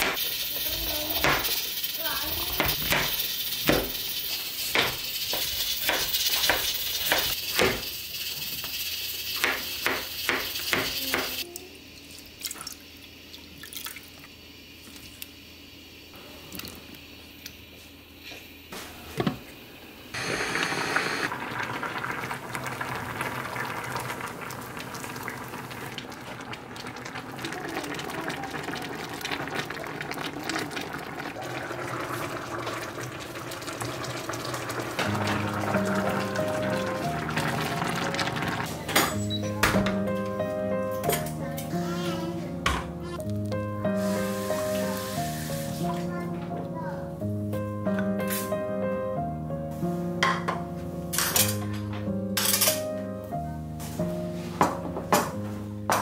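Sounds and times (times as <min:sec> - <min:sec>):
onions sizzling: 0:00.0 - 0:11.5, 0:19.6 - 0:46.4, 0:47.2 - 0:48.8.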